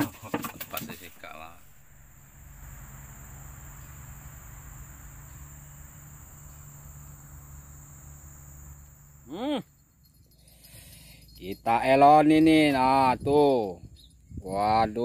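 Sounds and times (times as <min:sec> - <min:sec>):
low steady hum: 0:00.0 - 0:11.4
insects chirring: 0:00.0 - 0:15.0.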